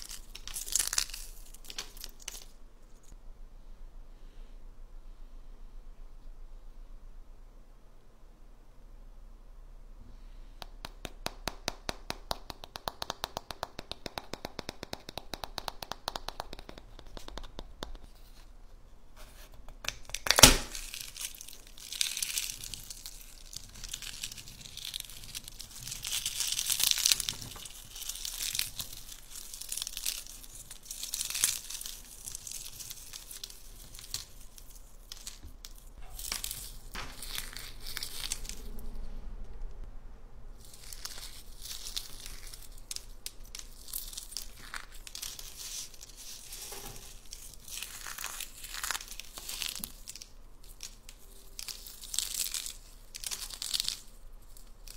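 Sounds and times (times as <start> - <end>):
eggshell cracking: 0.0 - 2.6, 19.7 - 38.5, 40.7 - 54.9
eggshell crinkling being peeled: 0.0 - 3.2, 11.8 - 18.6, 19.2 - 38.7, 40.6 - 54.9.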